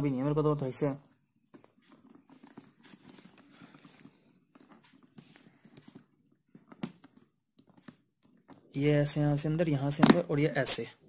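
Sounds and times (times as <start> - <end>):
plastic handling rustling: 1.4 - 8.7.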